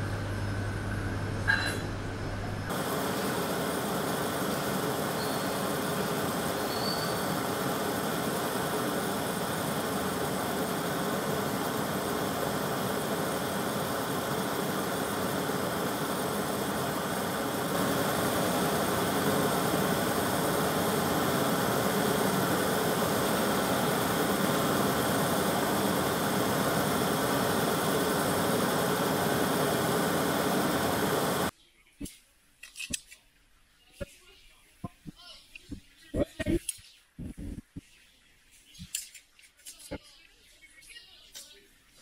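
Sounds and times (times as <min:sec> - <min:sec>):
gas torch flames roaring: 0:02.6 - 0:31.5.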